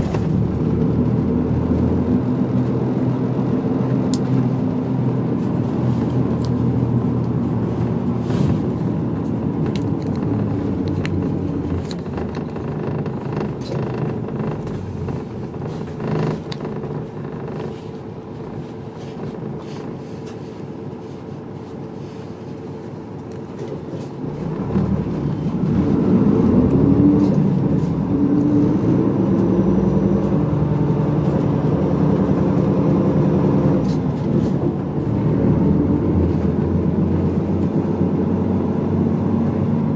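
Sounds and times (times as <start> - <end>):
bus engine drone: 0.0 - 39.9
light rattles and clicks: 8.6 - 20.5.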